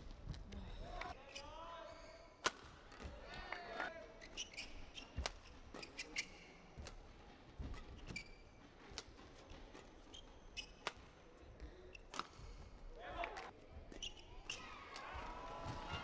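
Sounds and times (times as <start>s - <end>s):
racket hitting shuttlecock: 2.4s - 3.1s, 10.6s - 11.2s
shoes squeaking on court: 4.2s - 11.2s, 13.7s - 15.0s.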